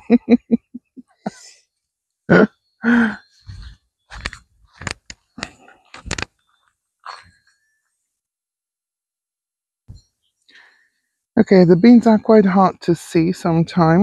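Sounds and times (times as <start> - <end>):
clicks and thumps near microphone: 3.4 - 6.4.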